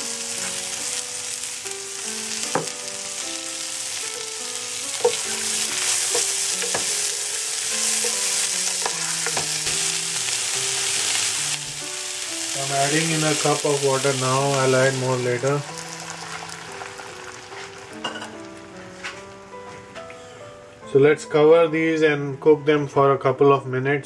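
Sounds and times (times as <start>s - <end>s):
vegetables sizzling in a frying pan: 0.0s - 18.7s
spatula knocking against pan: 6.1s - 7.0s.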